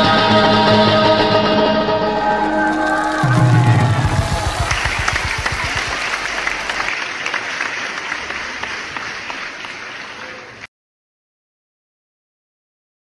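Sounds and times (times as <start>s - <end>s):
dance music: 0.0s - 7.0s
audience applauding: 2.2s - 10.7s.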